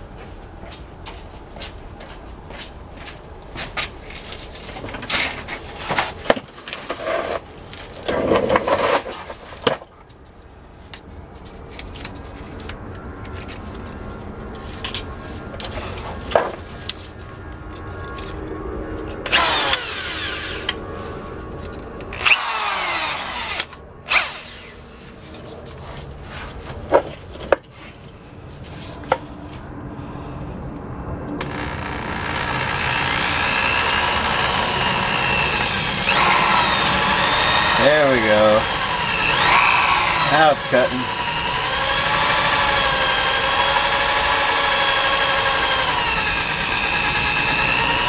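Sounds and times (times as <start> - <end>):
cordless drill running: 19.3 - 20.8, 22.2 - 24.8, 31.4 - 48.0.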